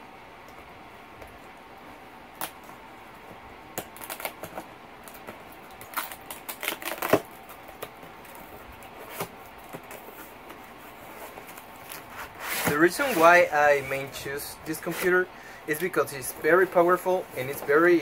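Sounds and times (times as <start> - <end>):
knife cutting cardboard: 8.9 - 18.0
cardboard box scraping open: 12.0 - 14.1.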